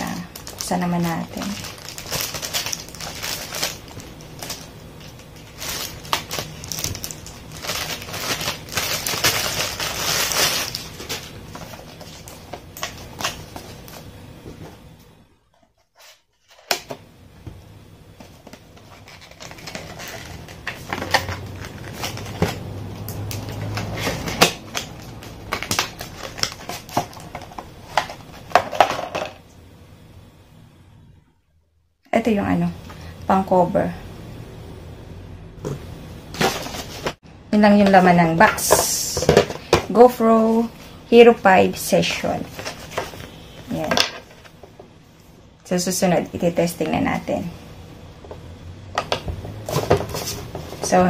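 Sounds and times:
plastic bag crinkling: 0:00.0 - 0:14.0, 0:18.6 - 0:28.6.

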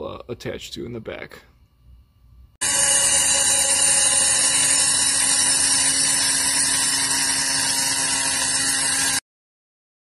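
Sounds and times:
rotary tool grinding metal: 0:02.6 - 0:09.2.

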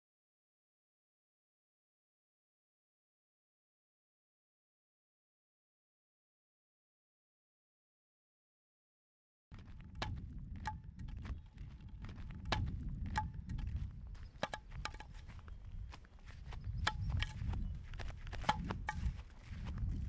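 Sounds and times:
footsteps crunching on stony road: 0:09.5 - 0:20.0.

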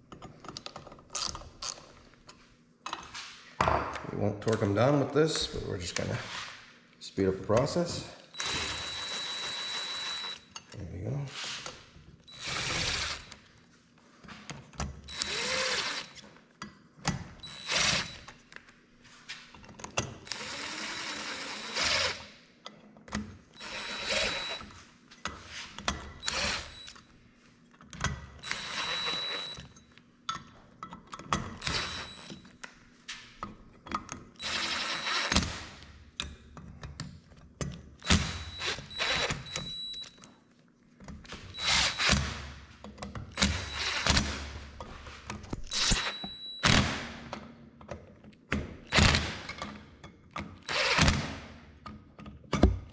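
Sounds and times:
clicks and knocks of tools: 0:00.1 - 0:03.2, 0:29.6 - 0:34.3
power drill whining: 0:08.3 - 0:10.4, 0:12.3 - 0:13.4, 0:15.1 - 0:16.2, 0:17.4 - 0:18.3, 0:20.3 - 0:22.3, 0:23.6 - 0:24.7, 0:26.2 - 0:27.0, 0:28.4 - 0:29.6, 0:31.6 - 0:32.4, 0:34.4 - 0:35.6, 0:38.0 - 0:40.0, 0:41.5 - 0:42.4, 0:43.4 - 0:44.4, 0:45.6 - 0:46.5, 0:50.7 - 0:51.3.

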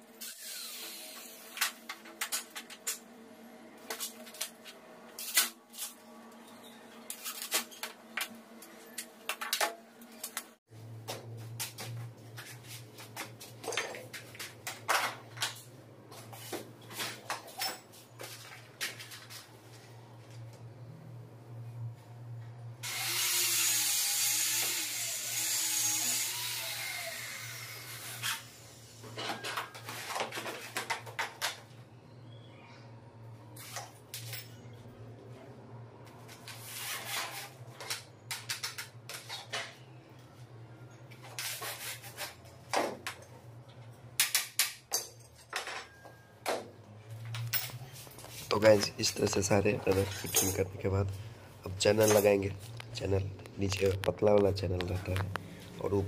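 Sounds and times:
clicks and knocks of tools: 0:37.8 - 0:39.8.

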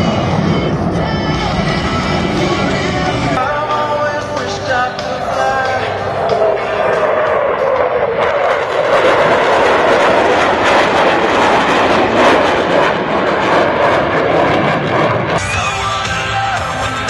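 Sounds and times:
music over public address: 0:00.0 - 0:09.0, 0:15.4 - 0:17.0
jet fighter flying past: 0:00.0 - 0:15.6.

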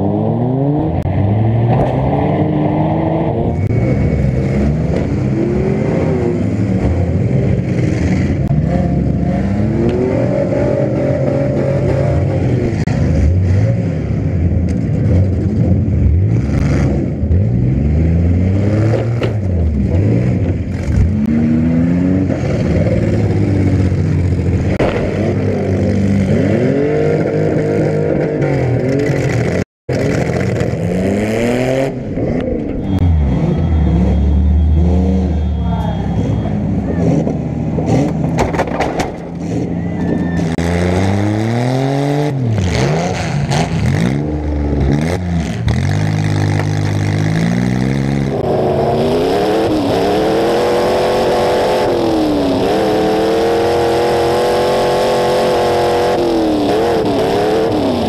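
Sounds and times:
car engines revving hard: 0:00.0 - 0:58.0
cars crashing together: 0:36.9 - 0:40.6.

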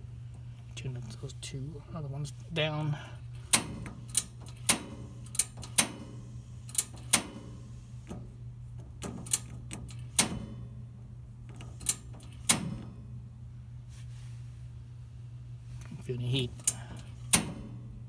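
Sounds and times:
low steady hum: 0:00.0 - 0:18.0
piezo igniter clicking: 0:03.4 - 0:10.7, 0:11.4 - 0:13.0, 0:16.5 - 0:17.9.

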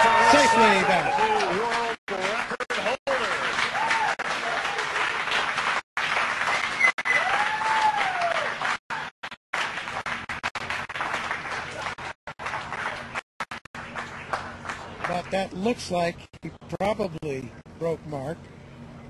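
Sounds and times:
person cheering: 0:00.0 - 0:01.7, 0:03.7 - 0:05.0, 0:07.1 - 0:08.6
crowd applauding and cheering: 0:00.0 - 0:15.4.

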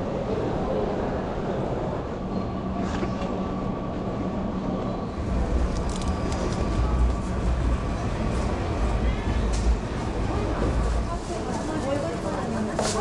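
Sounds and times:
deep rumble: 0:05.1 - 0:11.3
steady hum: 0:05.1 - 0:11.4.

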